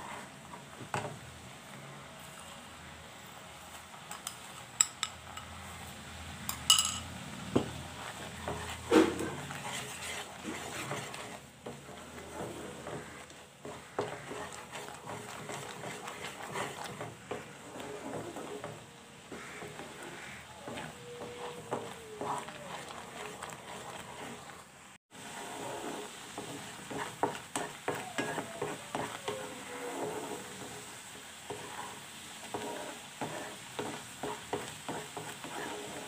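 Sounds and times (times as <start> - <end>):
spatula stirring and scraping jam: 0.0 - 2.6, 6.6 - 36.0
spoon clinking on glass bowl: 6.5 - 7.1.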